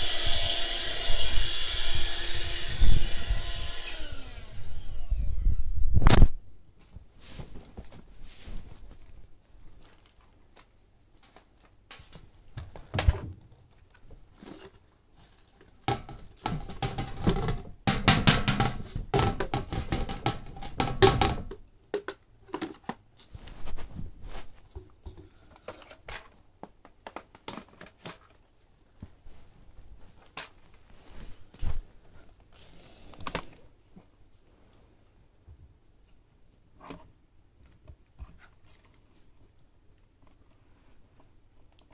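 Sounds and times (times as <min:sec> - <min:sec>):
rustling and scraping: 0:05.2 - 0:17.7, 0:22.5 - 0:35.1.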